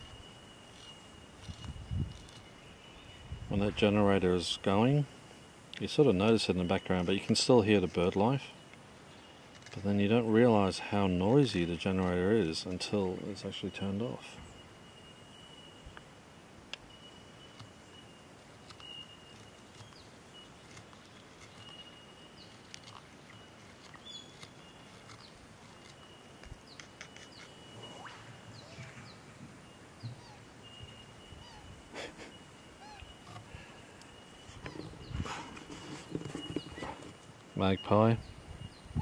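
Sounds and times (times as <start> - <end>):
birds chirping and whistling: 0.0 - 5.1, 16.8 - 39.0
thin high tone: 27.0 - 35.5
handling noise: 34.4 - 37.5.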